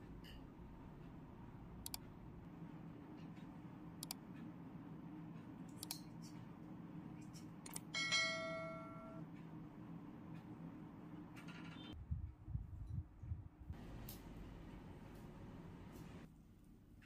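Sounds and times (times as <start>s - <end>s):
soft mouse clicks: 1.8s - 2.1s, 3.3s - 4.2s
bright bell ding: 8.0s - 9.2s.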